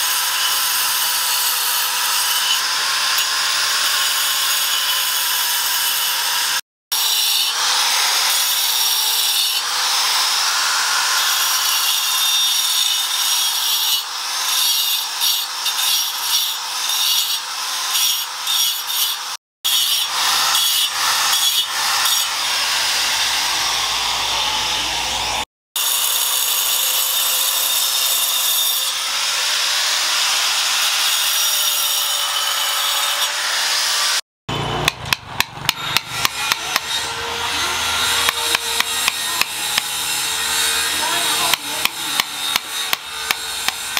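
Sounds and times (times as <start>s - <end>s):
angle grinder motor whine: 20.0s - 25.4s, 35.6s - 43.9s.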